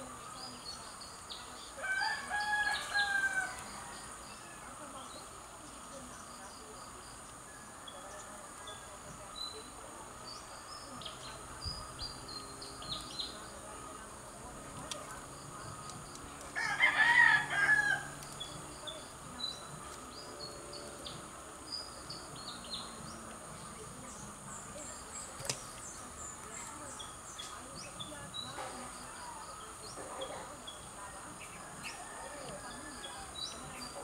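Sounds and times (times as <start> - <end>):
rooster crowing: 1.8 - 4.1, 16.6 - 18.2.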